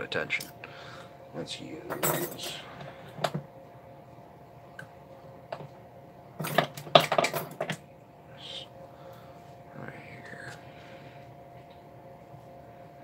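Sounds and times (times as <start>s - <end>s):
faint steady hum: 0.0s - 13.0s
metal tool clinking on clock parts: 1.9s - 2.6s.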